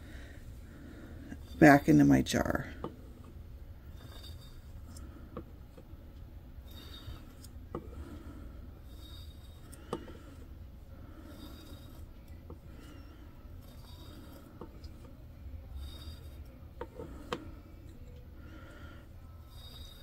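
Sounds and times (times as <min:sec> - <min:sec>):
metal spatula scraping glass: 0:03.9 - 0:04.8, 0:06.6 - 0:07.4, 0:08.9 - 0:09.7, 0:11.2 - 0:12.1, 0:12.7 - 0:14.9, 0:15.7 - 0:17.1, 0:19.4 - 0:20.0.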